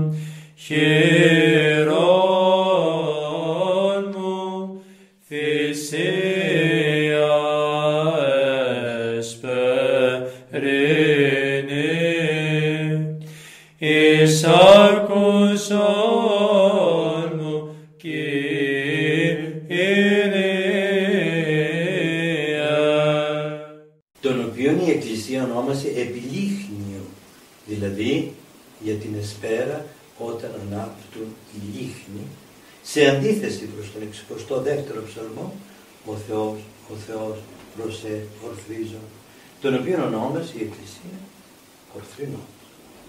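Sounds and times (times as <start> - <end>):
chant singing: 0.0 - 13.2, 13.8 - 25.1.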